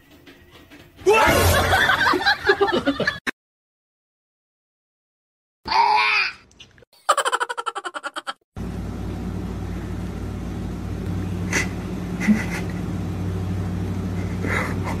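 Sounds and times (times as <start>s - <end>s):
low mechanical hum: 8.6s - 15.0s.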